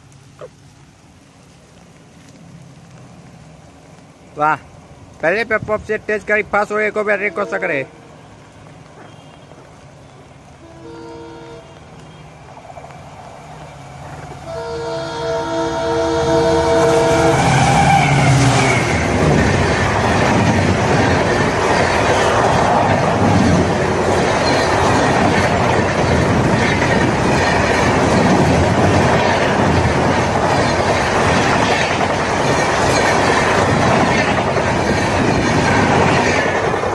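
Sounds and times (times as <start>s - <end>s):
locomotive engine rumble: 0.0s - 36.9s
locomotive horn: 7.0s - 8.3s, 9.0s - 12.3s, 14.4s - 18.9s
train wheels clattering on rails: 18.2s - 36.9s.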